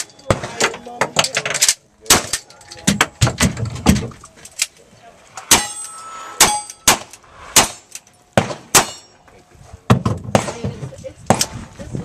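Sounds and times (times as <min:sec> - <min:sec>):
revolver shots ringing off steel: 0:05.4 - 0:09.2.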